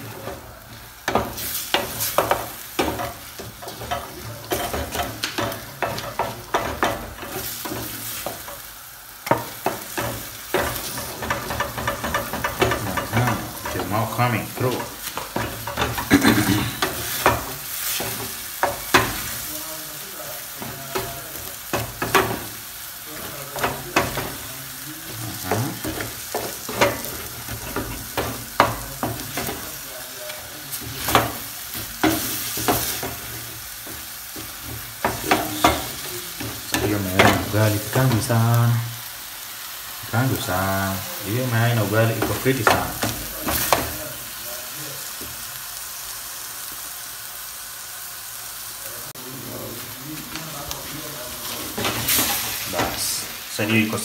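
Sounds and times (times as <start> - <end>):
wooden spoon scraping a pan: 0.0 - 38.8
food sizzling: 0.0 - 54.0.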